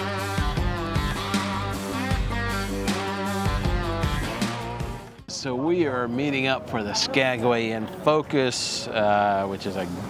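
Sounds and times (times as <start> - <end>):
guitar-led instrumental music: 0.0 - 5.4.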